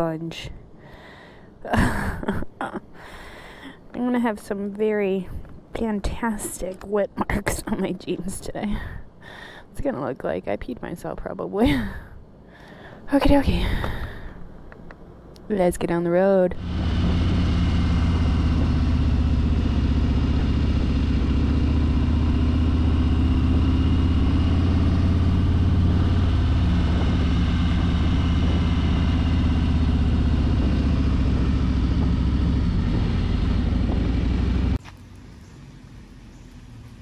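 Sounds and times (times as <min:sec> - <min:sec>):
wind and road noise: 0:00.0 - 0:37.0
motorcycle engine running: 0:16.5 - 0:37.0.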